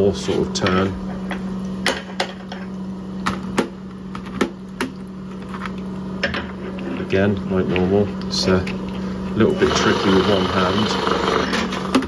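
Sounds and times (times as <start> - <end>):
honing machine humming: 7.2 - 12.0.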